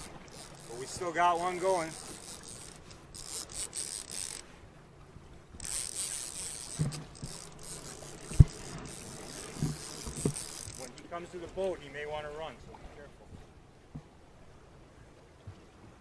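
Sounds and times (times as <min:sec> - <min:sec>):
fishing reel gears rasping: 0:00.0 - 0:04.6, 0:05.6 - 0:11.1.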